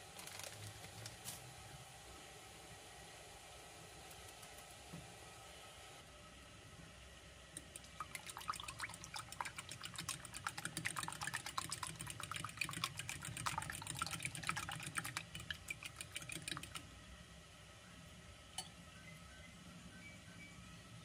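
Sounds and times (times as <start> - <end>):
fork beating eggs in glass bowl: 7.6 - 16.8.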